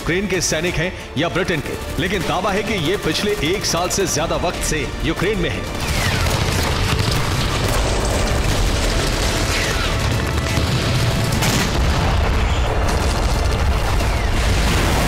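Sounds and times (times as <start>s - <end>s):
dramatic news music: 0.0s - 15.0s
low booming battle rumble: 6.1s - 15.0s.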